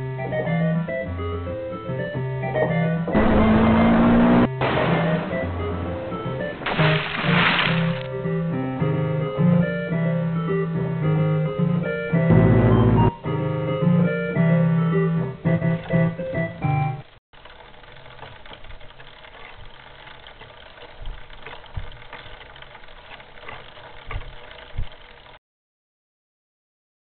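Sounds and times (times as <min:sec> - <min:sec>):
background keyboard music: 0:00.0 - 0:17.2.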